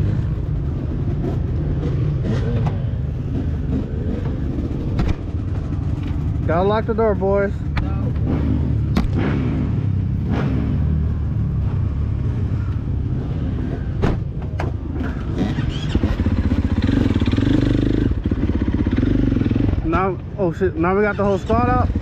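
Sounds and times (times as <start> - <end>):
dirt bike engine idling: 0.0 - 8.9, 15.1 - 22.0
sharp clicks and knocks: 14.0 - 15.3.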